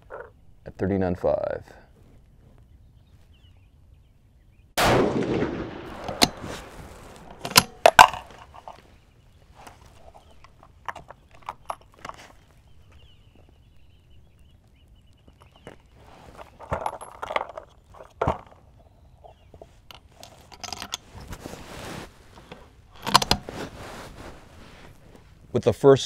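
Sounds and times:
rifle shot: 4.8s - 8.5s
clicks and knocks of handling: 7.2s - 8.8s, 9.6s - 13.1s, 15.1s - 18.6s, 19.2s - 21.4s, 22.4s - 23.6s.

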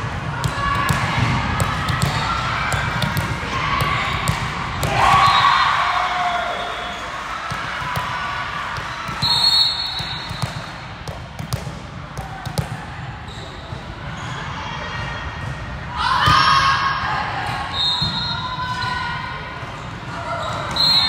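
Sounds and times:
balls thudding on court floor: 0.4s - 5.3s, 10.0s - 12.8s.

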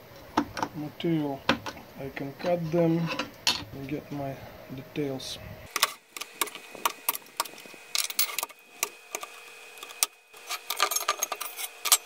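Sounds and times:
knife blade scraping metal: 9.9s - 12.0s.

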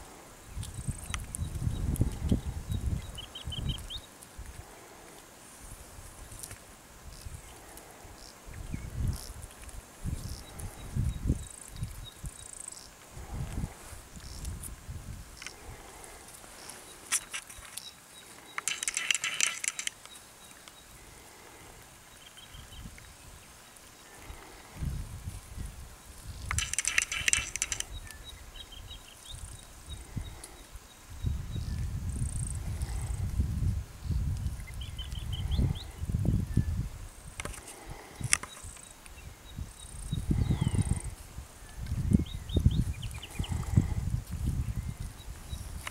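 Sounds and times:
bird chirping: 0.8s - 4.1s, 16.6s - 21.3s, 22.1s - 22.9s, 26.3s - 32.5s
monkey scratching at bark: 18.4s - 20.0s, 26.5s - 28.0s
sharp click: 18.5s - 20.2s, 26.5s - 28.1s.

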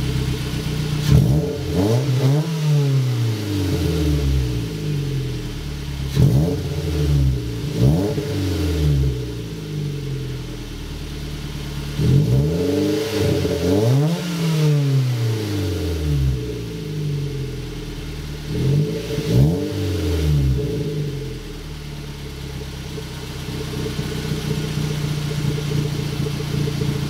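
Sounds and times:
car exhaust revving and idling: 0.0s - 27.0s.

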